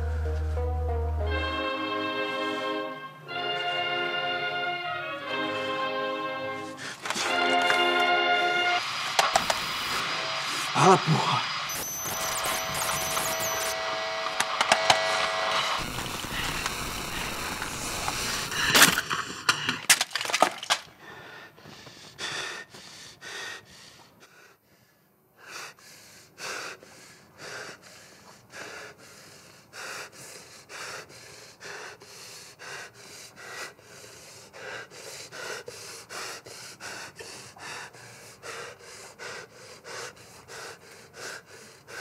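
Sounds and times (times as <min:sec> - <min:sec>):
person panting heavily: 0:06.6 - 0:07.4, 0:20.6 - 0:42.0
loud noise: 0:07.1 - 0:19.0.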